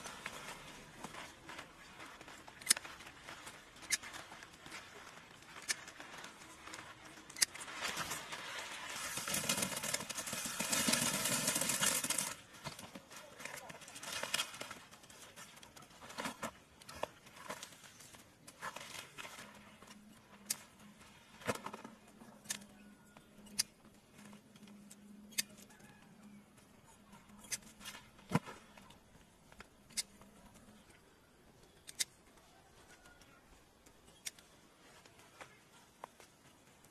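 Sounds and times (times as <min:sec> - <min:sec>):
leaves and branches rustling: 0:00.0 - 0:22.8.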